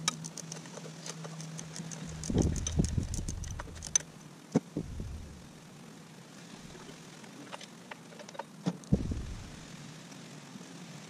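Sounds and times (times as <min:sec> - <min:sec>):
dull knocks: 0:08.9 - 0:09.5.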